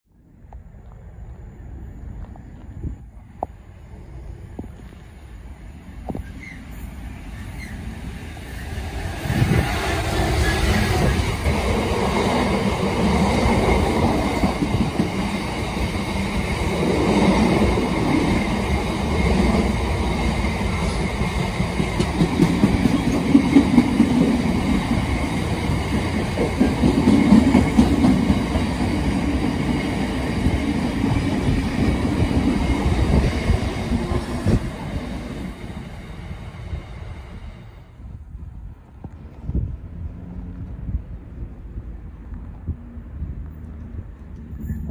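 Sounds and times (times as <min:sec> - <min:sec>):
diesel locomotive engine: 0:00.2 - 0:44.9
train wheels clattering on rails: 0:08.9 - 0:36.3.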